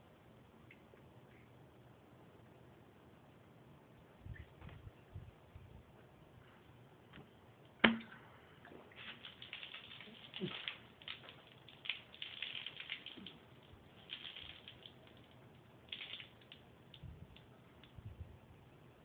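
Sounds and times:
soda splashing and dripping: 7.8 - 18.0.

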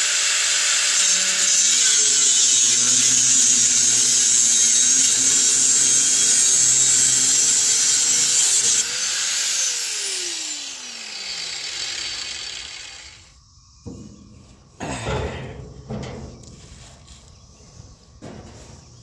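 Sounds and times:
angle grinder cutting steel pipe: 0.0 - 13.3
grinder wheel winding down: 0.0 - 13.3.

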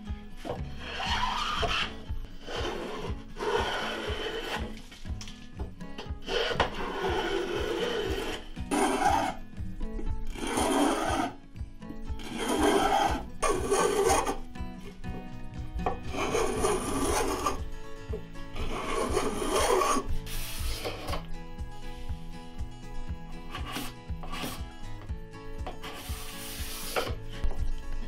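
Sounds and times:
spokeshave rasping on wood: 0.8 - 4.8, 6.2 - 9.4, 10.3 - 11.4, 12.2 - 14.5, 15.8 - 17.7, 18.6 - 21.2.

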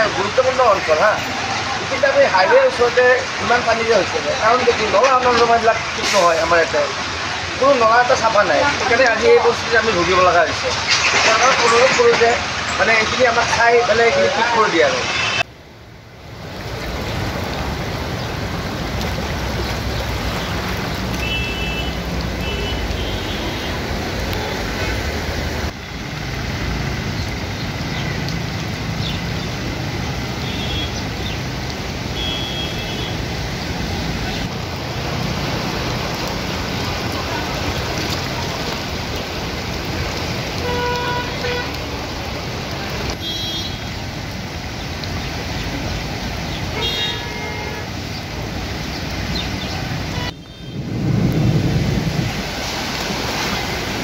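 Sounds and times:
traffic on wet road: 0.0 - 54.0
vehicle horns tooting: 14.2 - 15.4, 21.2 - 23.8, 30.4 - 31.0, 32.1 - 33.3, 40.6 - 41.8, 43.1 - 44.0, 46.7 - 48.0, 50.1 - 50.9.

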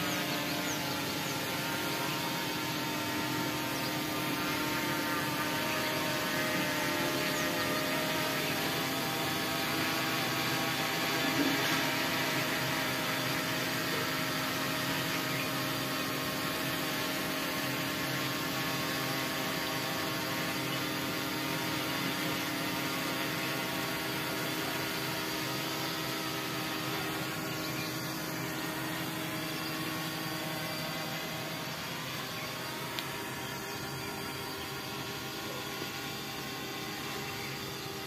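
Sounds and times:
drone motors humming: 0.0 - 38.0.

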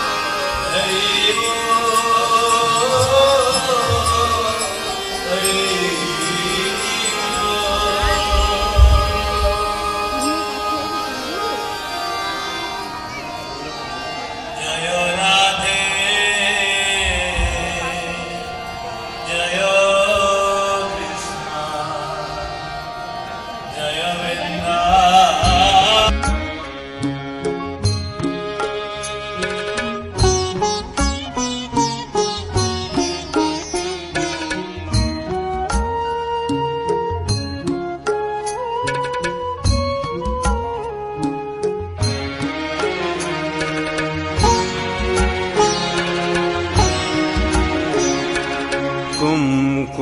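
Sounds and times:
devotional chant singing: 0.0 - 12.9, 14.1 - 26.1, 47.0 - 50.0
music: 0.0 - 50.0.

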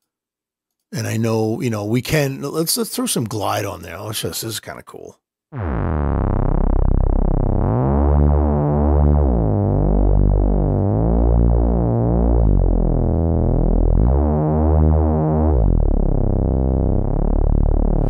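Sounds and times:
gliding low synth bass notes: 5.6 - 18.0.

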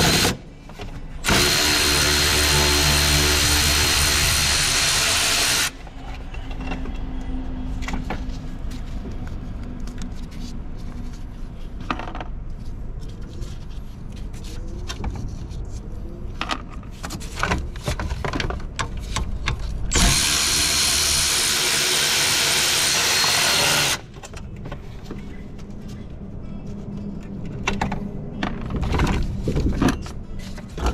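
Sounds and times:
power tool running: 0.0 - 0.4, 1.2 - 5.8, 19.9 - 24.1.

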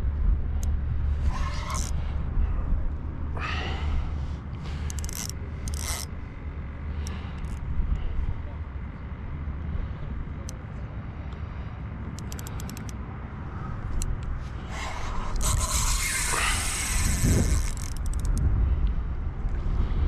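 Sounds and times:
quick clicks: 12.1 - 13.0, 15.3 - 18.5
wind buffeting microphone: 13.2 - 20.0
rushing scraping hiss: 14.6 - 17.9.

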